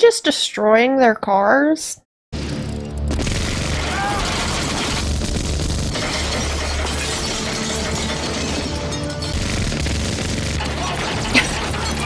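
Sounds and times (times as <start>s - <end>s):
minigun firing: 2.4s - 7.7s, 9.3s - 12.0s
cars shattering and exploding: 2.4s - 12.0s
dramatic music score: 2.4s - 12.0s.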